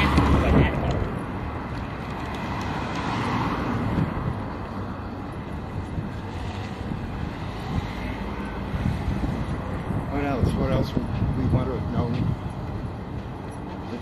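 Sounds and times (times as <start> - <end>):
wind rumbling on microphone: 0.0 - 13.8
road traffic passing: 0.0 - 14.0.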